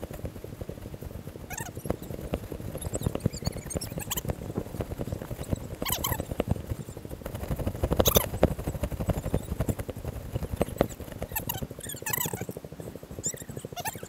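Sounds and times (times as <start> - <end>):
camera rustling and knocking: 0.0 - 13.8
high squeaky sounds: 13.2 - 14.0.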